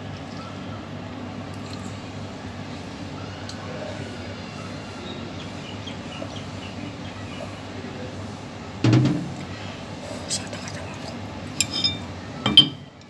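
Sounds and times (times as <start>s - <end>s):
short loud knock: 8.9s - 9.4s.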